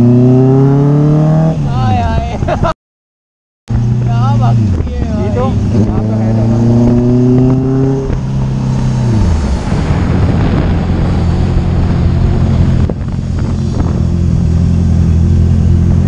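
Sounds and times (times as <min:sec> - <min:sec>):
motorcycle engine running: 0:03.7 - 0:16.0
wind on microphone: 0:03.8 - 0:15.3.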